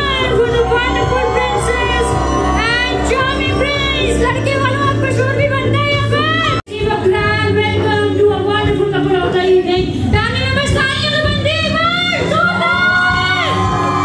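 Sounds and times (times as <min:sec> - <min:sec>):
backing music: 0:00.0 - 0:14.0
woman singing: 0:02.6 - 0:12.3.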